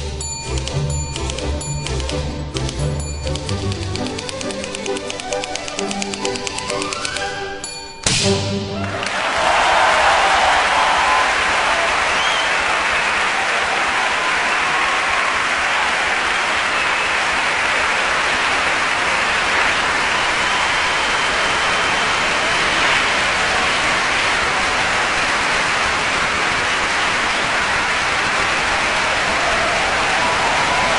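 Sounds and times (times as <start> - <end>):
audience applauding: 8.8 - 30.9.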